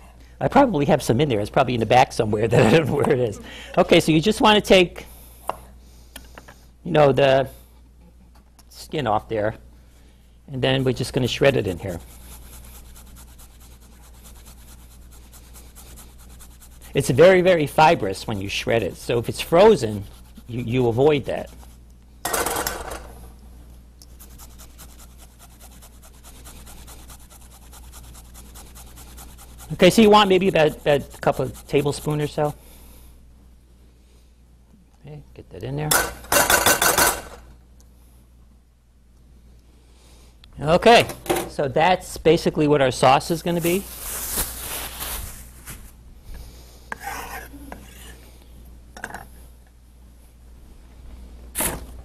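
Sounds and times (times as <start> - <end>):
ginger scraping on metal grater: 10.8 - 21.7, 24.2 - 32.4
hands rubbing together: 10.8 - 21.8, 24.1 - 32.3, 43.5 - 45.9
scraping on wooden cutting board: 46.9 - 48.2.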